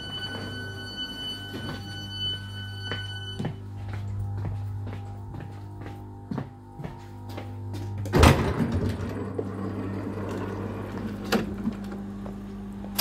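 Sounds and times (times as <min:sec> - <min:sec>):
platform noise: 0:00.0 - 0:04.6
low steady hum: 0:00.0 - 0:13.0.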